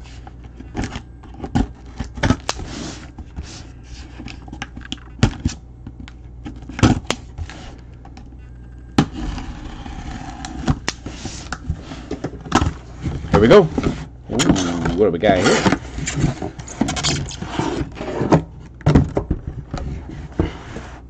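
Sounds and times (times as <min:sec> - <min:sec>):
box cutter cutting cardboard: 0:09.0 - 0:11.6
cardboard scraping and rustling: 0:09.1 - 0:18.6.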